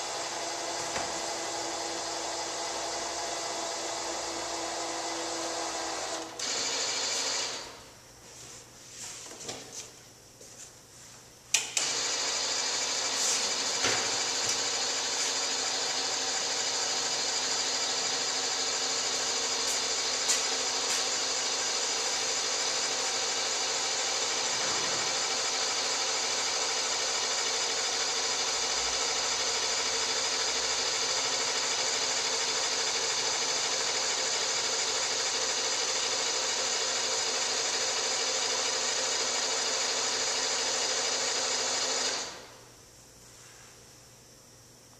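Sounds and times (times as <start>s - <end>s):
electric motor whirring: 0.0s - 7.8s, 11.8s - 42.5s
motor clunk: 0.6s - 1.4s, 13.4s - 15.4s.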